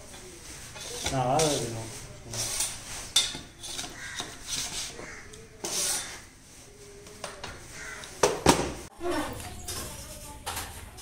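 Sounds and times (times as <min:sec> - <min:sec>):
knife scraping brittle slab: 0:02.3 - 0:06.3.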